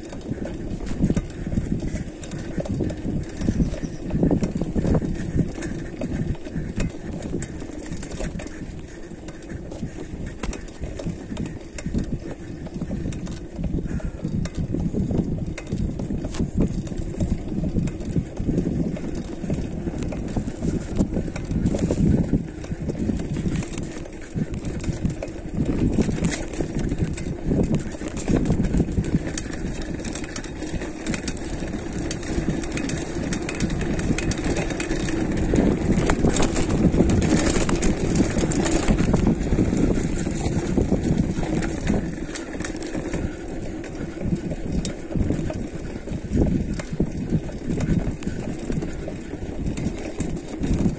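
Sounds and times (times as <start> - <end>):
mountain bike rattling on dirt trail: 0.0 - 50.9
wind rumbling on microphone: 0.0 - 50.9.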